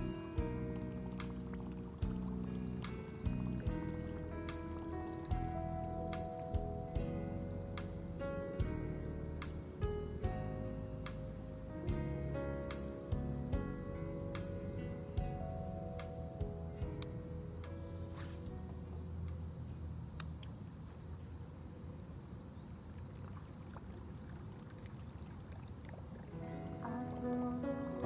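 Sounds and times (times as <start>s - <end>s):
soft background music: 0.0s - 19.9s, 26.3s - 28.0s
insects trilling: 0.0s - 28.0s.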